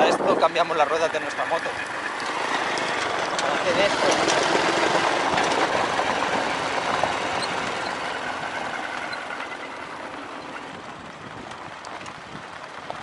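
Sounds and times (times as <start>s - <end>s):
motorcycle engine running: 0.0s - 13.0s
wind rush: 0.0s - 13.0s
tyres on gravel: 0.2s - 13.0s.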